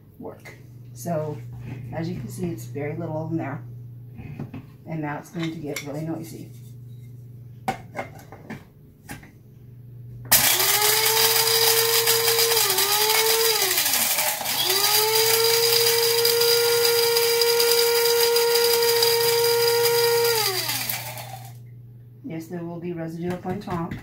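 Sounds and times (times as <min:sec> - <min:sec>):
blade grinder motor grinding: 0:10.3 - 0:21.6.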